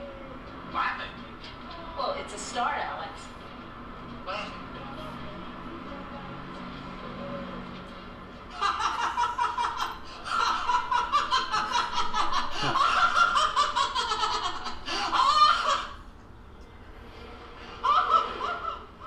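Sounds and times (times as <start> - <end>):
people laughing: 8.5 - 16.0, 17.6 - 19.0.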